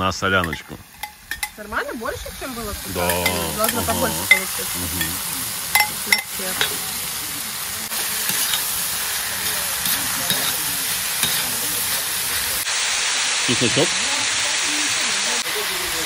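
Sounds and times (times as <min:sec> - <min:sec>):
meat sizzling in hot oil: 0:00.0 - 0:16.0
metal spatula knocking pot: 0:00.4 - 0:01.6.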